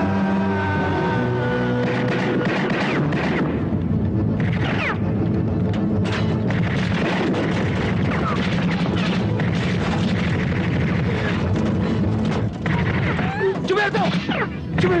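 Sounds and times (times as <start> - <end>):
action soundtrack music: 0.0 - 15.0
booms: 6.4 - 14.4.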